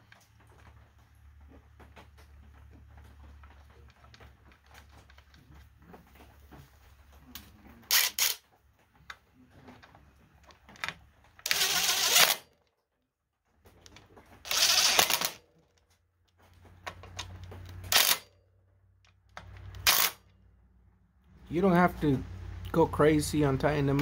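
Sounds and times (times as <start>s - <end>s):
impact driver rattling bursts: 7.9s - 8.5s, 11.4s - 12.5s, 14.4s - 15.5s, 17.8s - 18.3s, 19.6s - 20.2s
low motor hum: 21.2s - 24.0s.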